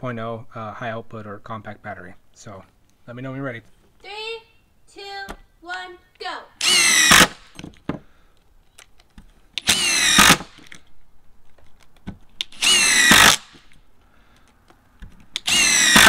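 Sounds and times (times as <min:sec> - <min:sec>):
screws clicking: 0:06.6 - 0:07.4, 0:09.6 - 0:10.8, 0:12.4 - 0:13.7, 0:15.3 - 0:16.0
impact driver driving screws: 0:06.6 - 0:07.7, 0:09.6 - 0:10.8, 0:12.4 - 0:13.8, 0:15.2 - 0:16.0.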